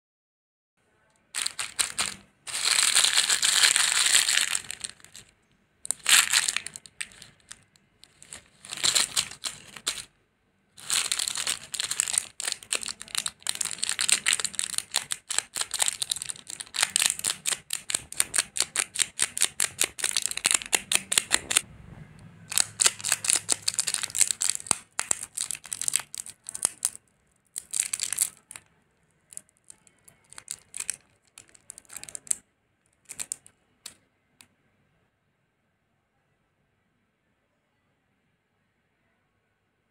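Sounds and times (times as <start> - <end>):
candy wrappers crinkling: 1.4 - 10.1, 10.8 - 21.6, 22.5 - 32.4, 33.0 - 33.5.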